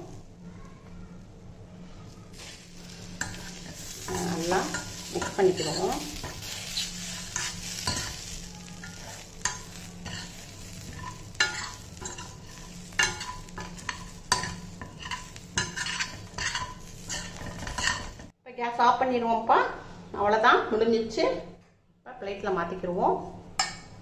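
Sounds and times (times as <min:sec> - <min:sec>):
hot oil sizzling: 0:02.3 - 0:18.3
metal spoon scraping steel pan: 0:02.4 - 0:18.3.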